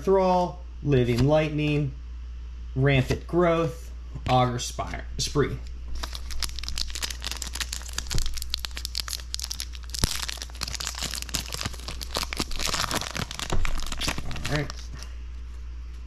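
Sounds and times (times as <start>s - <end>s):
foil wrapper crinkling and tearing: 5.9s - 15.1s.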